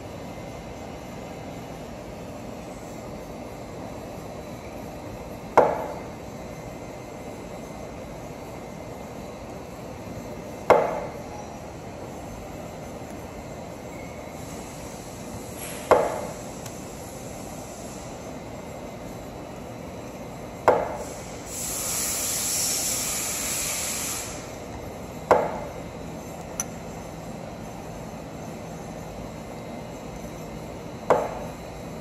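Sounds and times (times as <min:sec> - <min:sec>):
hiss: 0:14.3 - 0:18.4, 0:20.7 - 0:24.7.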